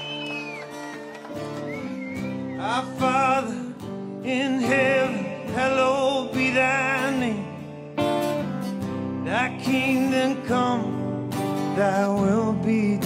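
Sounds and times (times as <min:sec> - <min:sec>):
strummed guitar chords: 0:00.0 - 0:13.0.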